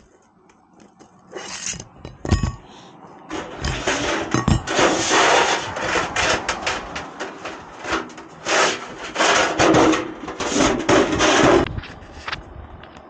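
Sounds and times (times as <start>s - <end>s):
scraping on a shingled roof: 3.3s - 12.4s.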